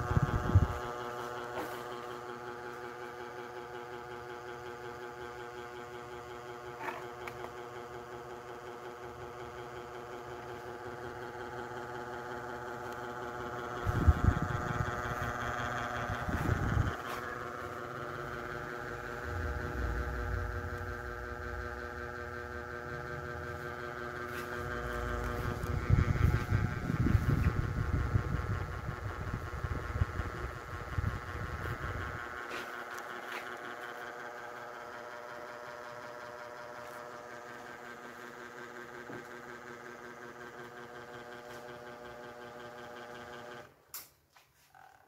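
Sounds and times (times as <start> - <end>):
ceiling fan motor humming: 0.0 - 43.8
low rumble: 18.4 - 22.6.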